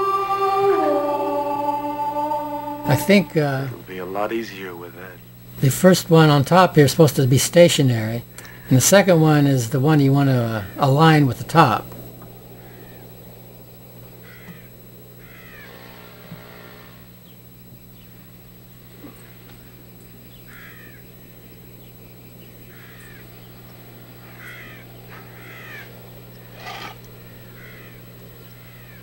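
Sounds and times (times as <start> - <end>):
low electrical hum: 0.0 - 29.0
falling bird chirps: 19.1 - 29.0.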